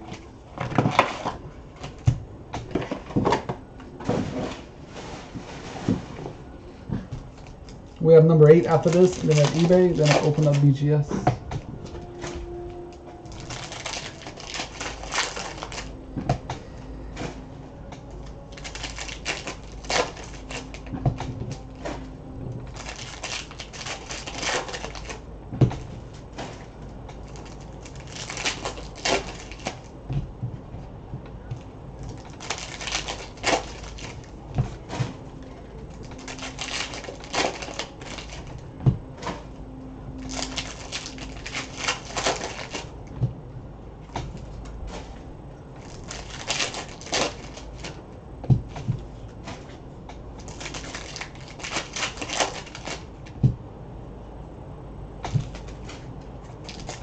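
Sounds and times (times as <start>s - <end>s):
card packs torn open: 8.4s - 11.0s, 13.2s - 15.9s, 18.0s - 21.9s, 22.7s - 25.2s, 26.5s - 29.9s, 32.0s - 34.3s, 35.9s - 38.6s, 40.2s - 43.0s, 45.8s - 48.0s, 50.4s - 53.4s, 55.3s - 57.0s.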